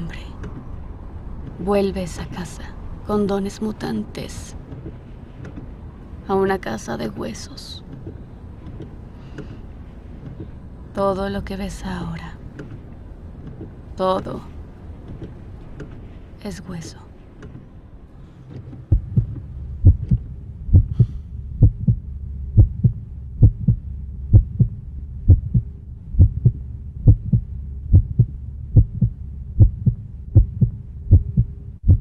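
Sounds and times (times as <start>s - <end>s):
low steady hum: 0.0s - 32.0s
heartbeat thumping: 18.8s - 32.0s.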